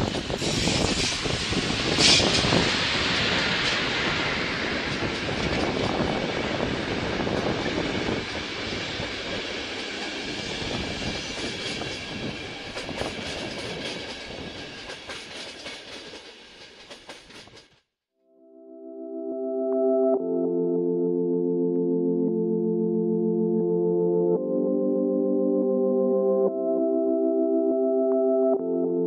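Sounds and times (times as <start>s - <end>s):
train wheels clicking over rail joints: 0.0s - 17.8s.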